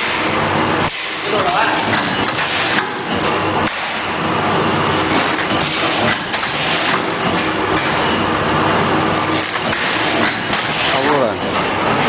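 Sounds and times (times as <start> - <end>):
packaging machine clattering: 9.3 - 11.8.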